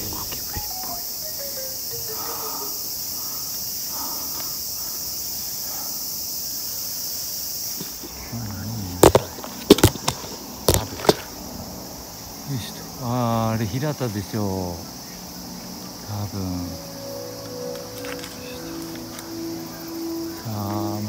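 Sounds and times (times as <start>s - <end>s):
high-pitched insect chorus: 0.0s - 21.0s.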